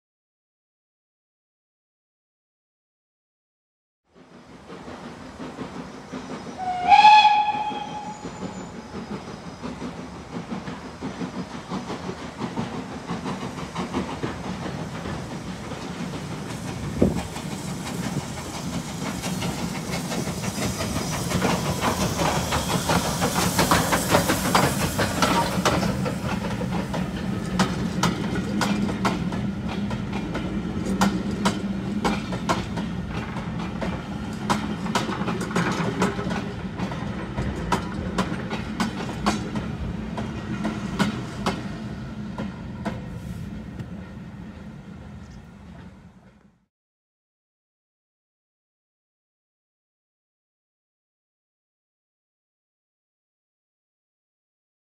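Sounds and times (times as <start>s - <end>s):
steam engine hissing: 4.2s - 45.0s
wheels clicking over rail joints: 4.6s - 43.1s.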